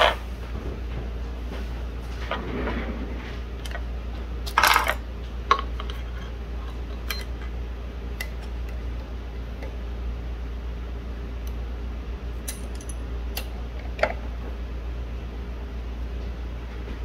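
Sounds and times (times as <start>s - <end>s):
steady low hum: 0.0s - 17.0s
small metal clicks and clinks: 12.4s - 13.0s.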